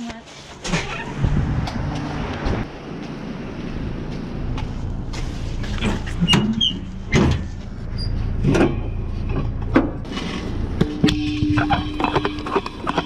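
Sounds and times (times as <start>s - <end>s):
low rumble: 1.1s - 13.0s
metal cylinder knocking and clunking: 10.8s - 13.0s.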